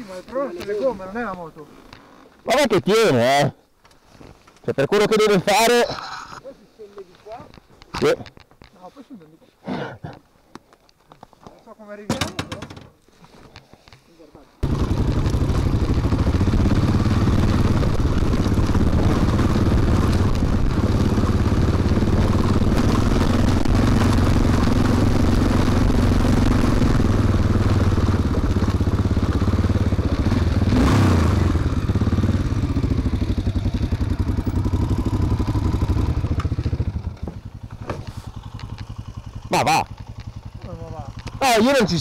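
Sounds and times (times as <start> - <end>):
motorcycle engine running: 14.6 - 42.0.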